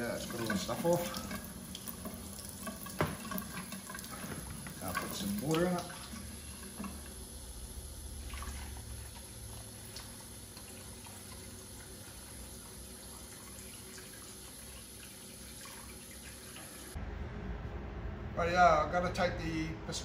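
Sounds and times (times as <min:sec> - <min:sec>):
tap running into plastic tub: 0:02.0 - 0:07.0.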